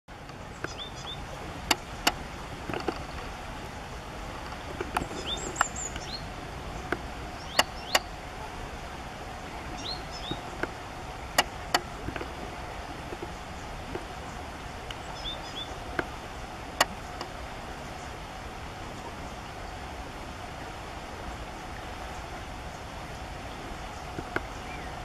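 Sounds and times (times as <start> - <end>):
steady outdoor hiss: 0.1 - 25.0
small birds chirping: 0.3 - 2.2, 2.8 - 8.2, 9.4 - 18.2, 22.0 - 25.0.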